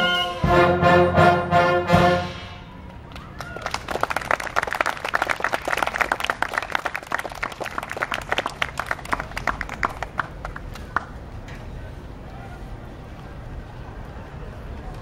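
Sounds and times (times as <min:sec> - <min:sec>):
audience applauding: 0:03.1 - 0:11.1.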